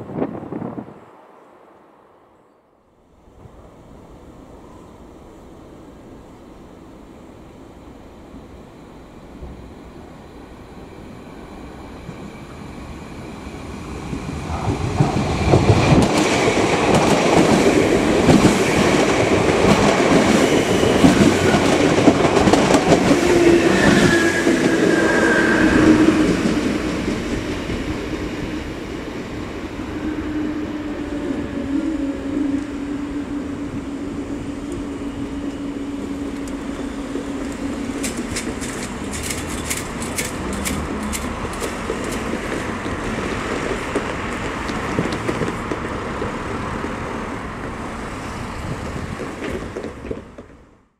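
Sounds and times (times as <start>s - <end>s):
train wheels clattering over rail joints: 37.2s - 46.4s.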